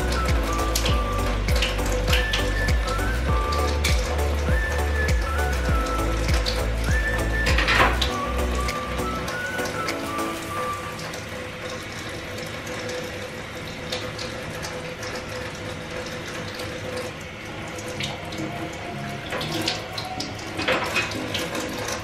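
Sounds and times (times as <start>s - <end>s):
water splashes: 0.0s - 22.0s.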